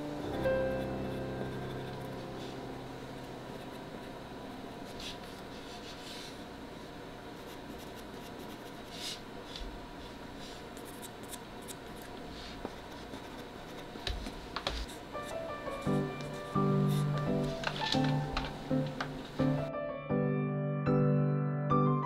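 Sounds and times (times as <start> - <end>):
music chord: 0.0 - 4.8, 15.2 - 22.0
pastel stick scratching paper: 7.4 - 9.3, 10.8 - 17.8.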